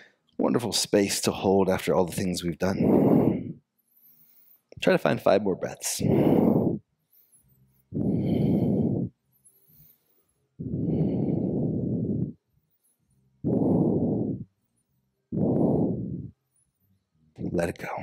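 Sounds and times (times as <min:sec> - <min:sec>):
man breathing deeply: 0:02.6 - 0:04.8, 0:05.9 - 0:12.5, 0:13.4 - 0:14.6, 0:15.3 - 0:16.4.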